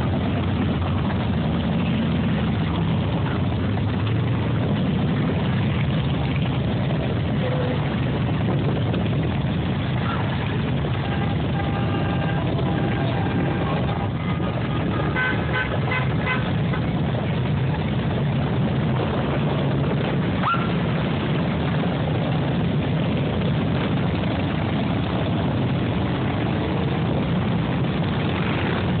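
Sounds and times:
motorcycles passing: 0:00.0 - 0:29.0
horn toots: 0:10.8 - 0:16.9.

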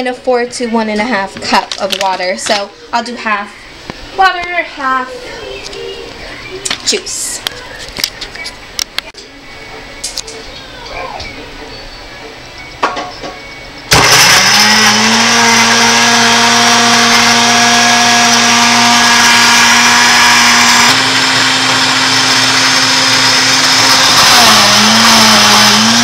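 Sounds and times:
blender motor whining: 0:13.9 - 0:26.0.

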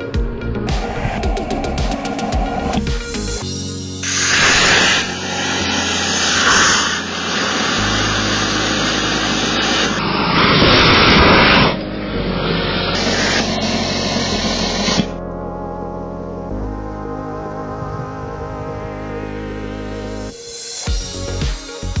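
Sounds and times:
fire jetting with rushing hiss: 0:00.6 - 0:15.1, 0:20.3 - 0:21.8.

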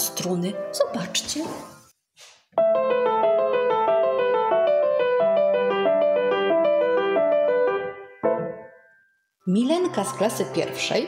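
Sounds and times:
grand piano broken chords: 0:02.6 - 0:11.0.

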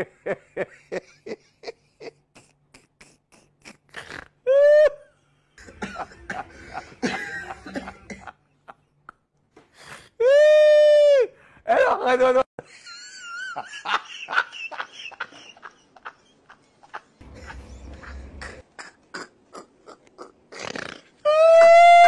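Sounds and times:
rhythmic vocal bursts: 0:02.3 - 0:04.4
rough coughing-like vocal noise: 0:05.6 - 0:08.4, 0:17.2 - 0:21.1
person crying out: 0:21.2 - 0:22.0.

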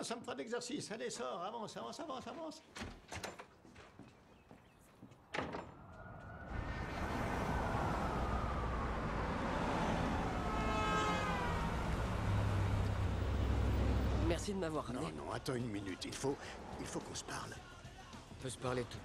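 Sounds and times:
cars and bus passing: 0:05.2 - 0:19.0
door thudding shut: 0:05.3 - 0:05.8
falling whine of passing vehicle: 0:05.8 - 0:14.3.

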